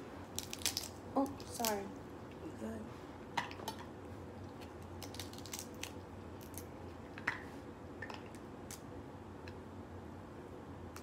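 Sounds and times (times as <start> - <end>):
crab shell cracking: 0.3 - 1.8, 4.8 - 6.7.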